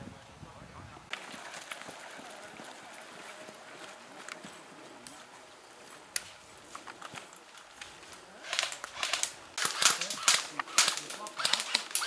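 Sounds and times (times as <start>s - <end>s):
airsoft guns firing: 8.4s - 12.0s.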